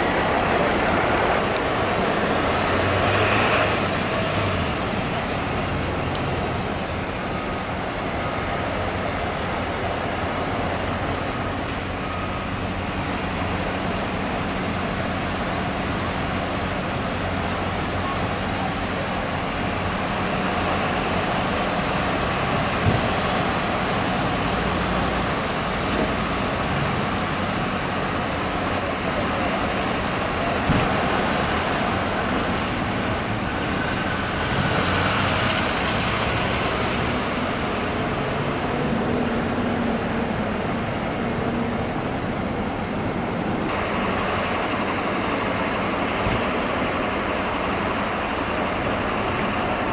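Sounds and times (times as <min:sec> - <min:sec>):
diesel engines rumbling: 0:00.0 - 0:49.9
street traffic noise: 0:00.0 - 0:49.9
brief high squeals: 0:11.0 - 0:15.3, 0:28.6 - 0:30.6.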